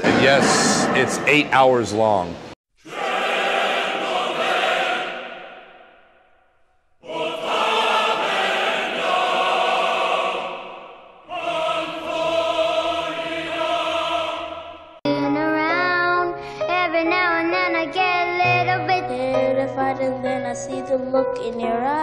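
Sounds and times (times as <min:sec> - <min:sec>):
choir holding long chords: 0:02.8 - 0:06.1, 0:07.0 - 0:15.0.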